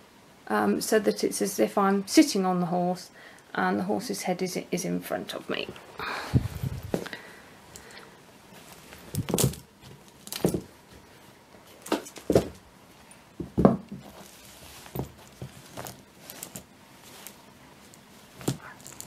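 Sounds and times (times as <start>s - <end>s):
soft knocks: 13.4s - 14.1s.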